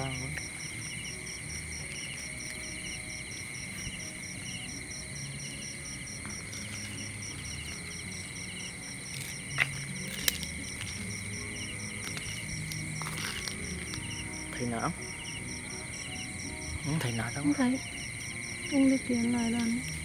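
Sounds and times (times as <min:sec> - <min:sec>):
crickets and insects trilling: 0:00.0 - 0:20.0.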